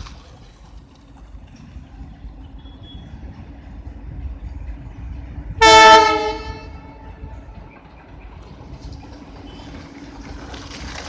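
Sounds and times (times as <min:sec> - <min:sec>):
train running rumble: 0:00.0 - 0:11.0
locomotive horn blast: 0:05.5 - 0:07.7.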